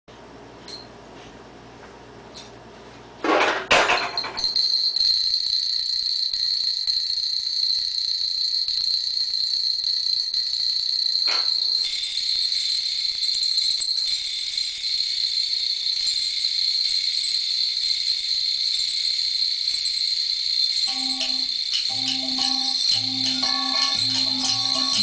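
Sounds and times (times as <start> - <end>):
high shimmering metallic ringing: 4.0 - 25.0
sharp metallic strikes: 20.9 - 25.0.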